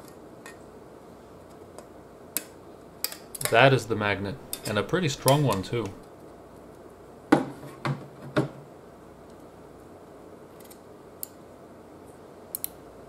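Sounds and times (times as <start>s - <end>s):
magnet clicking against screwdriver: 12.5s - 12.8s.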